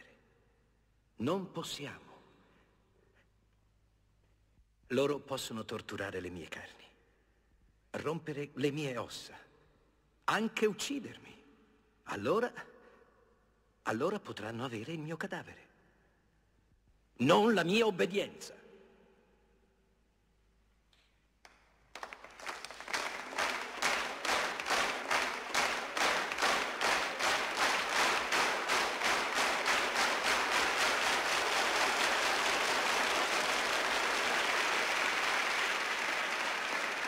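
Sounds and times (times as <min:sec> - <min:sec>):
audience applauding: 0:21.4 - 0:37.0.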